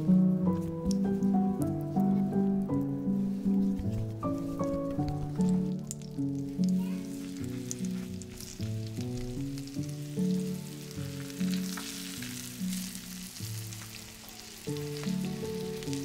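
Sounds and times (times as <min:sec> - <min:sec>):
background music of held notes: 0:00.0 - 0:16.0
chicken sizzling in frying pan: 0:04.8 - 0:16.0.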